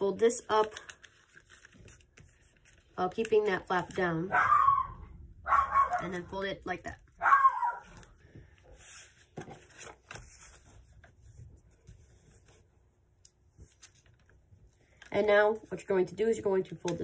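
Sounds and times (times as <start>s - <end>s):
paper rustling and crinkling: 0.4s - 4.1s, 7.8s - 12.7s, 13.4s - 15.7s.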